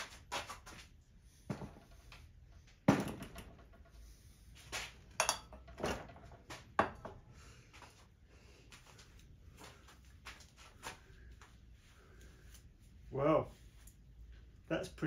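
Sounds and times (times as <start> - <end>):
objects knocking and clunking: 1.4 - 7.3.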